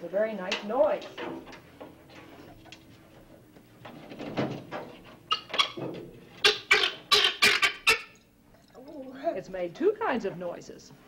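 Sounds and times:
guinea fowl harsh rapid calls: 6.4s - 8.2s.

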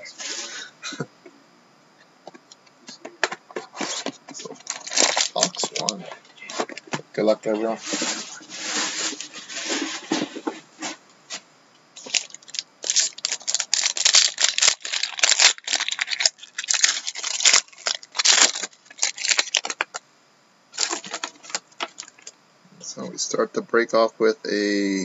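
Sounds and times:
foil wrapper tearing and crinkling: 4.6s - 6.0s, 12.0s - 20.0s, 20.8s - 22.3s.

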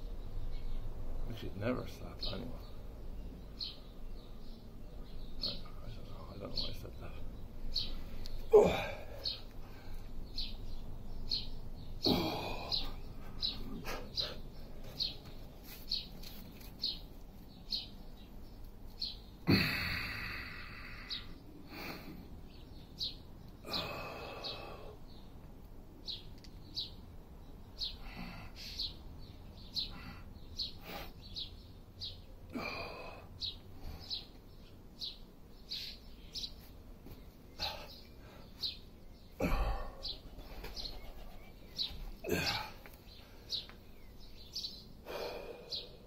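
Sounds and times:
small birds chirping: 0.0s - 46.0s
breathy rushes: 8.5s - 10.1s, 19.5s - 22.3s.

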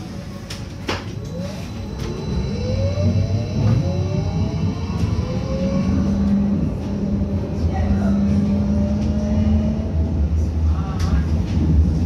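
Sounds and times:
train running rumble: 0.0s - 12.0s
train motors whining: 1.1s - 10.6s.

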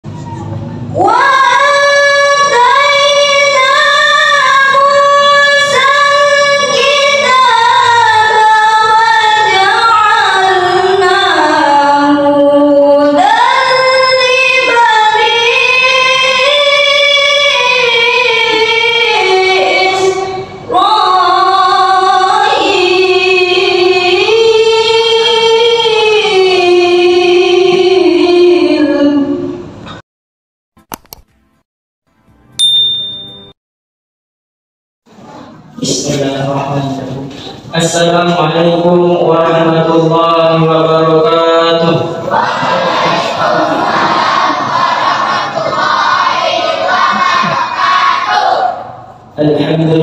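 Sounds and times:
woman reciting melodically: 0.1s - 29.6s.

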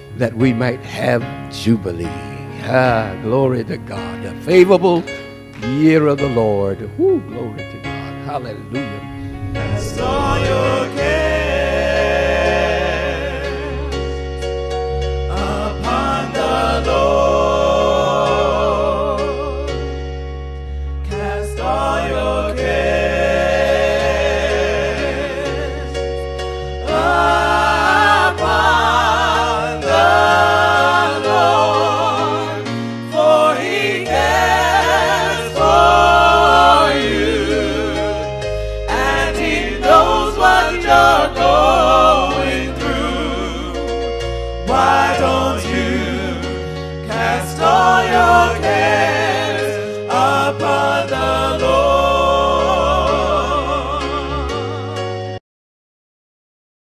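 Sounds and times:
held bass notes: 5.6s - 13.9s
choir singing with vibrato: 8.8s - 20.1s, 21.0s - 55.4s.

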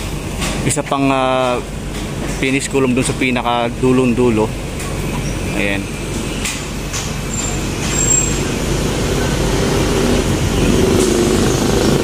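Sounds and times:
diesel truck engine: 0.0s - 12.0s
street traffic: 0.0s - 12.0s
thin high squeal: 7.3s - 8.5s.

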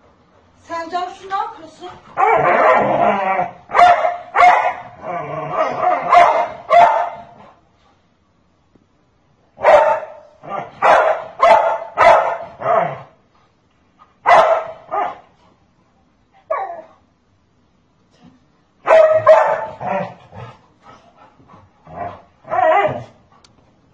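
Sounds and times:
dog barking: 3.7s - 5.0s, 5.7s - 7.4s, 9.6s - 12.8s, 14.2s - 15.2s, 18.8s - 20.1s.

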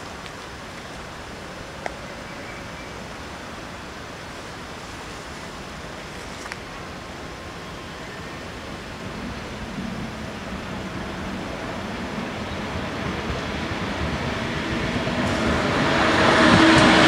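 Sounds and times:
wind on microphone: 8.9s - 17.0s.

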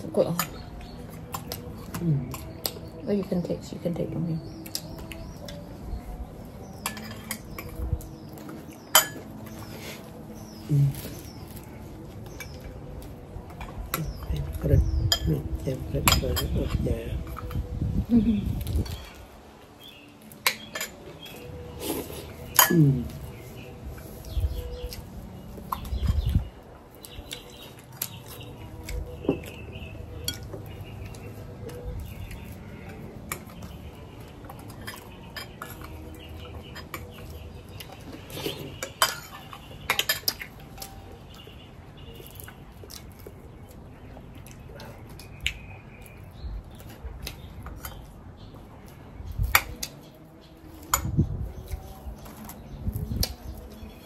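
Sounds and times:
dishes and utensils clinking: 6.7s - 7.8s, 8.8s - 9.6s, 15.1s - 17.6s, 20.4s - 21.3s, 22.5s - 23.0s, 34.5s - 37.3s, 38.3s - 41.0s.

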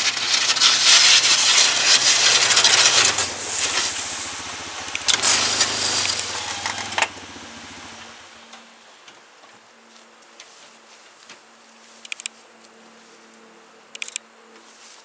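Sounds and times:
snow scraping along plow blade: 0.0s - 8.5s
utility vehicle engine running: 0.0s - 8.7s.

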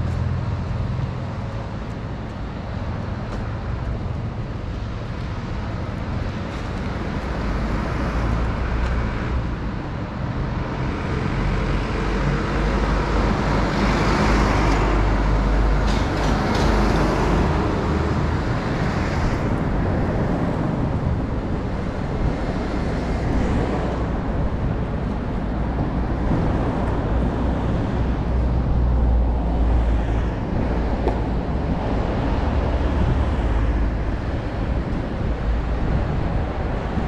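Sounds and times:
cars passing: 0.0s - 37.0s
low traffic rumble: 0.0s - 37.0s.

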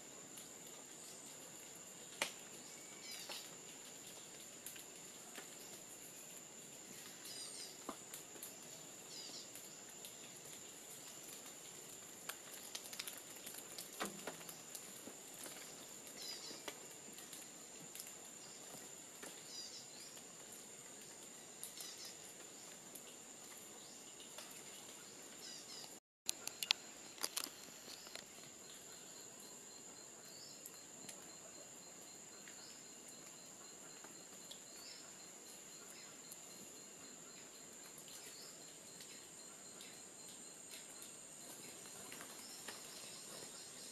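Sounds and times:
faint clicks: 24.2s - 28.3s.

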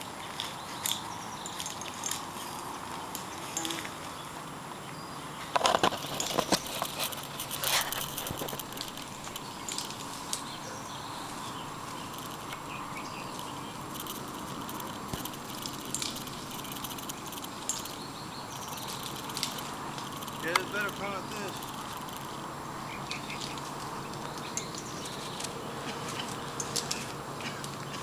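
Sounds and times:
steady outdoor hiss: 0.0s - 28.0s
sharp clicks and rustles: 5.5s - 10.6s, 11.8s - 28.0s.

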